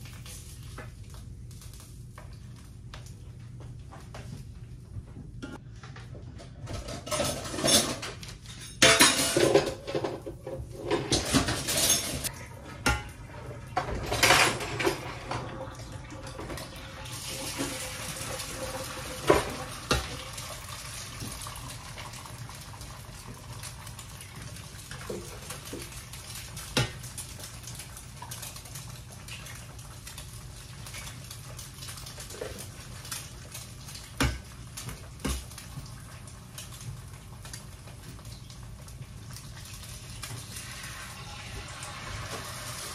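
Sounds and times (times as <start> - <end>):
dishes and cutlery clattering: 6.4 - 15.4
water running into a sink: 10.0 - 31.2, 39.2 - 42.9.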